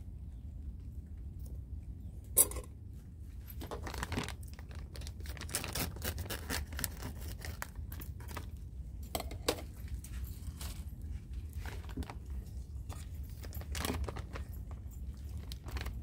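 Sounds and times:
plastic bag crinkling: 3.6 - 8.6, 11.5 - 16.0.

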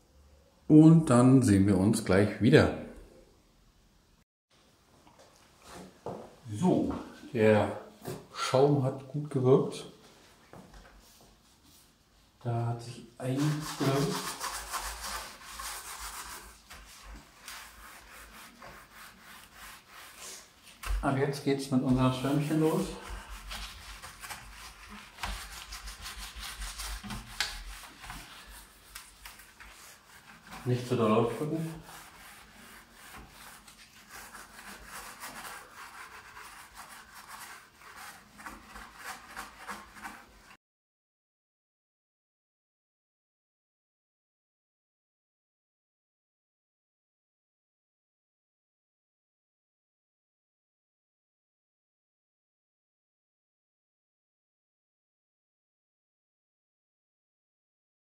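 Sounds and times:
sponge scrubbing a baking tray: 13.2 - 40.6
hands rubbing foamy cleaner: 13.4 - 40.6.

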